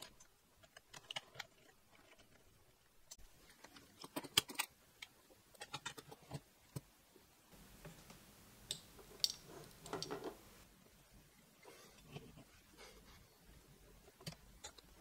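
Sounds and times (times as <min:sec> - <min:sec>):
small metal parts clicking: 0:08.7 - 0:10.3.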